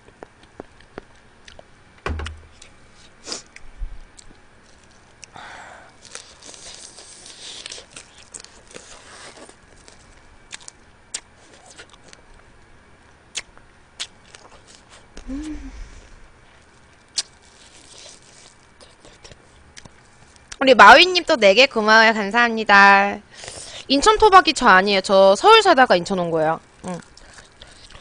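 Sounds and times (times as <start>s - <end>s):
low thump: 2.0s - 2.6s
person chewing and sucking crab: 2.5s - 12.7s, 13.3s - 20.6s, 26.6s - 28.0s.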